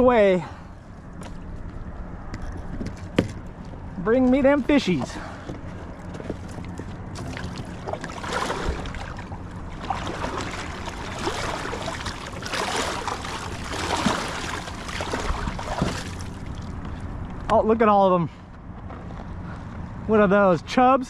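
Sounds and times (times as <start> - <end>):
water slapping against kayak hull: 6.2 - 17.0.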